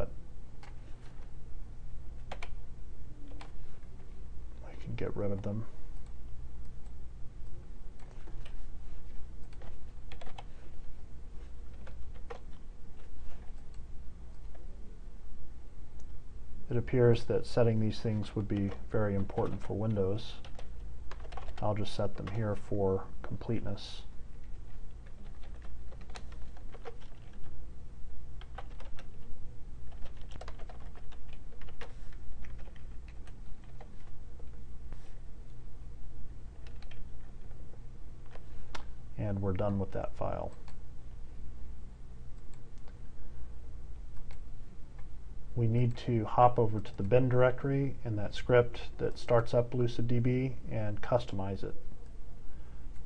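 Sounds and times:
low steady hum: 0.0 - 53.0
keyboard keystrokes: 36.6 - 37.0.

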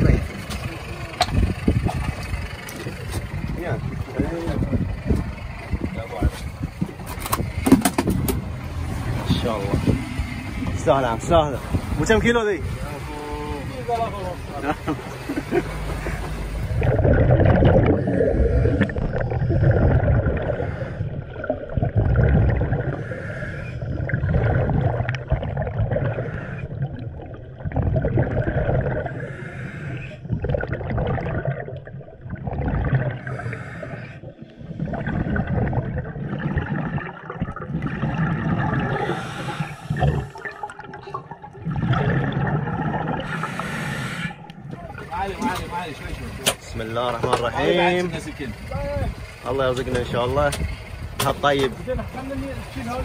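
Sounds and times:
scuba exhaust bubbles gurgling: 16.0 - 46.4.

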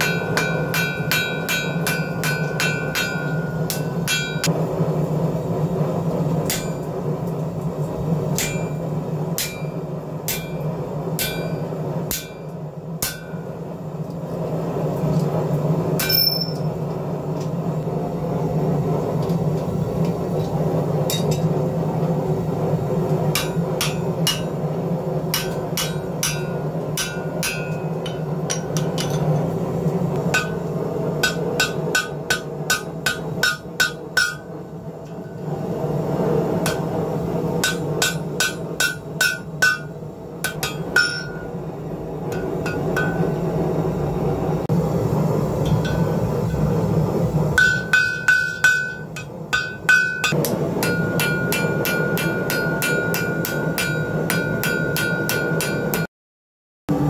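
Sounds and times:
hammer ringing on anvil: 0.0 - 4.5, 6.4 - 7.0, 8.4 - 13.5, 16.0 - 16.8, 21.1 - 21.6, 23.3 - 24.7, 25.3 - 29.4, 30.3 - 35.4, 36.6 - 41.6, 42.3 - 43.5, 45.7 - 46.2, 47.6 - 56.1
steady low hum: 0.0 - 56.1.

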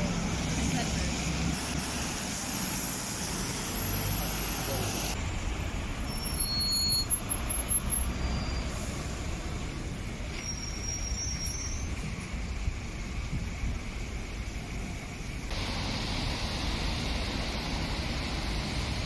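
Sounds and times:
street traffic rumble: 0.0 - 19.0
faint high-pitched squeals: 5.6 - 9.0, 10.2 - 12.3.

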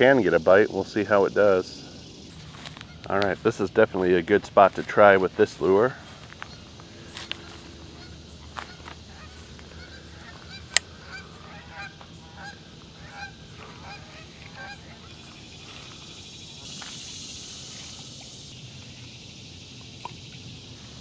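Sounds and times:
waterfowl honking: 7.5 - 15.8.

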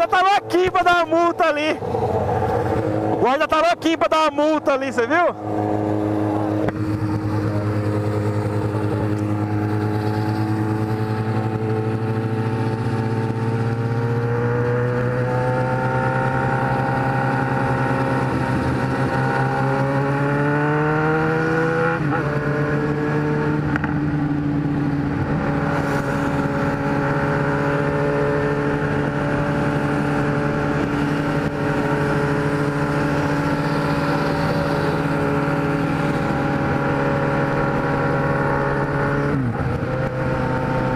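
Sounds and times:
motorcycle engine at speed: 0.0 - 40.9
wind rushing: 1.7 - 3.4.

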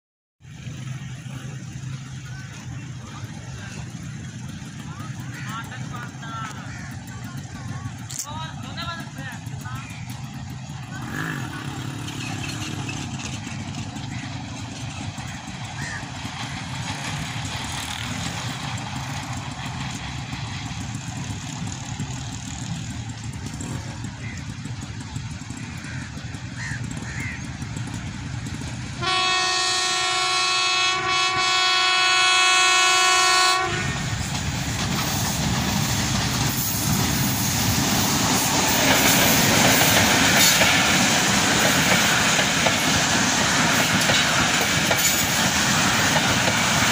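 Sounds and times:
train rumbling past: 0.4 - 46.9
locomotive horn blast: 28.9 - 34.4.

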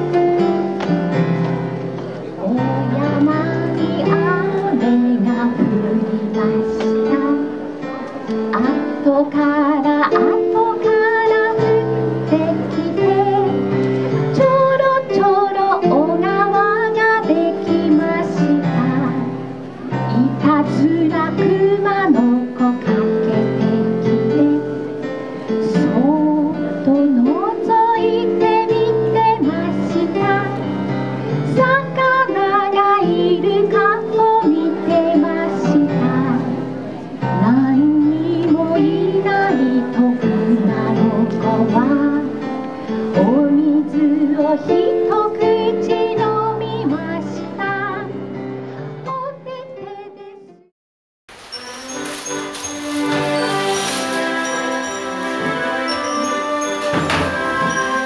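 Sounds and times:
woman singing: 2.4 - 48.3, 49.0 - 50.7, 52.8 - 58.0
electronic keyboard accompaniment: 51.3 - 58.0.

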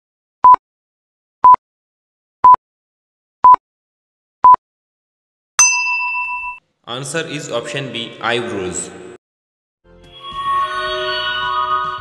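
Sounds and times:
bell-like ding: 5.6 - 6.6.

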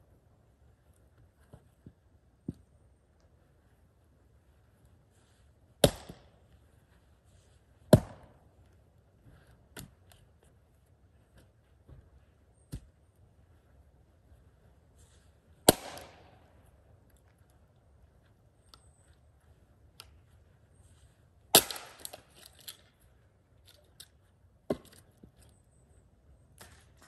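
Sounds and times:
axe splitting firewood: 5.8 - 6.2, 21.5 - 22.6.

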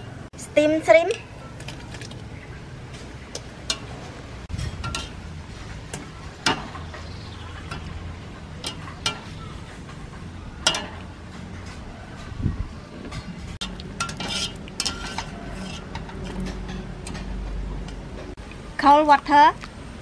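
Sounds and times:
strainer clinking against pot: 4.7 - 5.2, 13.6 - 17.2.

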